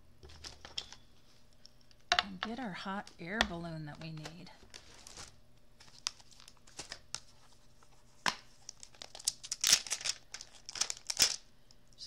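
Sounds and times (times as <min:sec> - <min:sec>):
plastic packaging crinkling: 0:00.2 - 0:01.0, 0:03.0 - 0:11.5.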